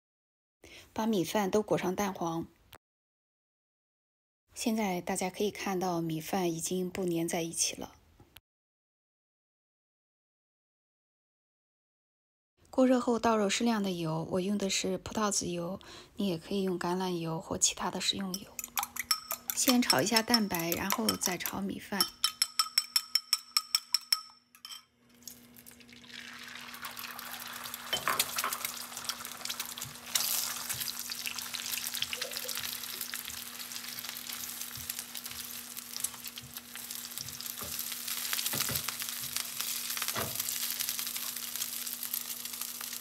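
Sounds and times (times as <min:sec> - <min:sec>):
fork beating eggs in bowl: 0:18.2 - 0:24.8, 0:27.2 - 0:37.9
eggs sizzling in oil: 0:18.3 - 0:23.0, 0:25.1 - 0:43.0.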